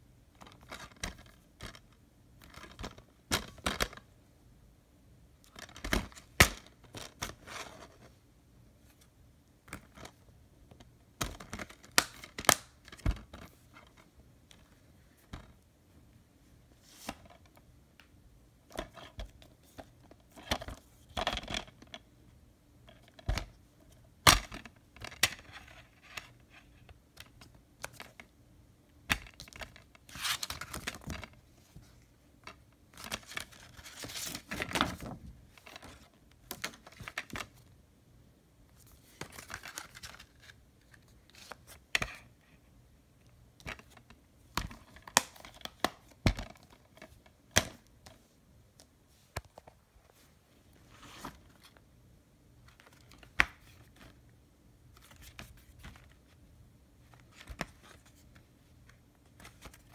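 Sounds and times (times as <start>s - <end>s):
cardboard slipcover rustling and sliding: 50.1s - 51.8s.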